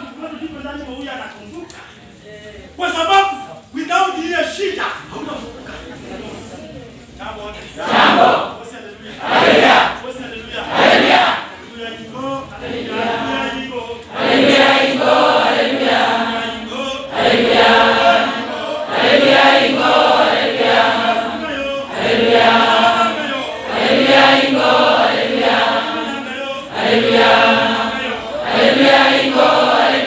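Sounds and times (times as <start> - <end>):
group singing chant-like hymn: 7.8 - 10.0, 10.6 - 11.6, 12.6 - 30.0.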